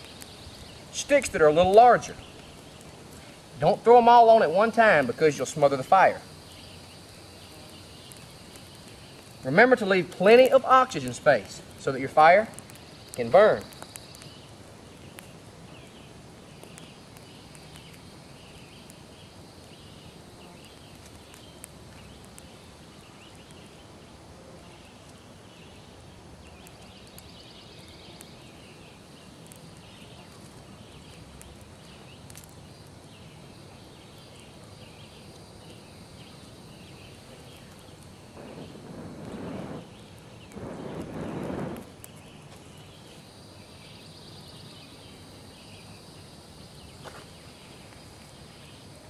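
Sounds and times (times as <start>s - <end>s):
twig fire crackling: 0.0s - 49.0s
breath blowing on embers: 2.0s - 3.7s, 10.6s - 22.5s, 36.4s - 42.3s.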